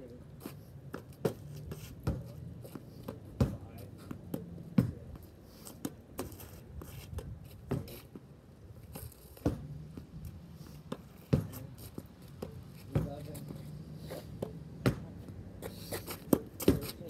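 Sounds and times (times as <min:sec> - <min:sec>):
ball bouncing on asphalt: 0:00.4 - 0:08.3, 0:08.9 - 0:17.0
tennis ball hitting garage door: 0:16.3 - 0:16.9.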